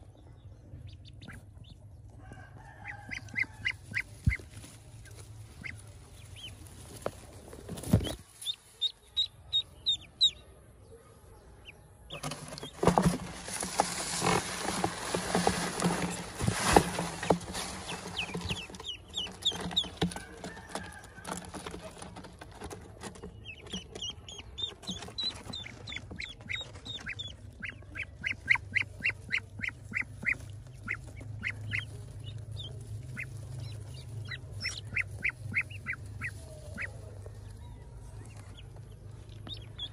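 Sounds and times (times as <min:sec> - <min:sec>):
ducklings peeping: 0:00.0 - 0:10.6, 0:11.2 - 0:39.9
loud rustling: 0:12.1 - 0:23.3.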